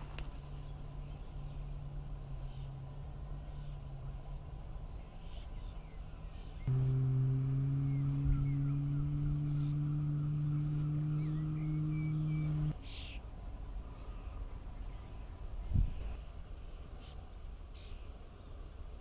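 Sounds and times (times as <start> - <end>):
deep horn blast: 6.7 - 12.7.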